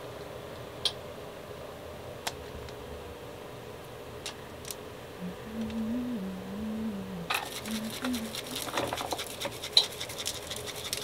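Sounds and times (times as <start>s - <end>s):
steady low hum: 0.0s - 11.0s
low wavering tone: 5.2s - 8.3s
seasoning jar rattling: 7.4s - 11.0s.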